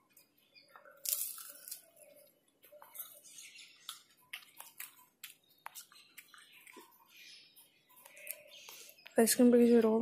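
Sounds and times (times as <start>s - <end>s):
ice cream cone crunching: 0.1s - 7.3s.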